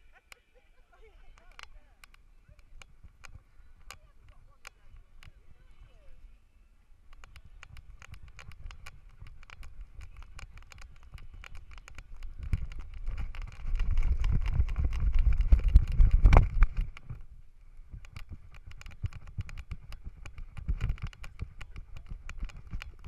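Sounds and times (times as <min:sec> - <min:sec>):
wind rumble on microphone: 0:07.0 - 0:23.0.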